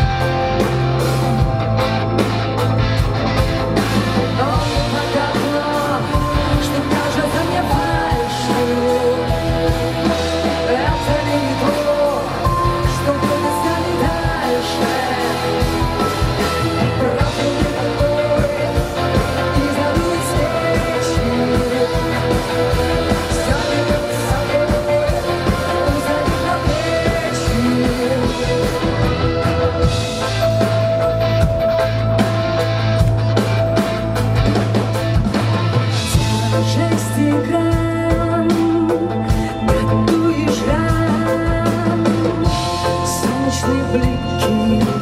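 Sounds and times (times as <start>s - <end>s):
bass guitar: 0.0s - 45.0s
drums: 0.0s - 45.0s
electric guitars: 0.0s - 45.0s
person singing: 4.0s - 30.7s, 36.0s - 45.0s.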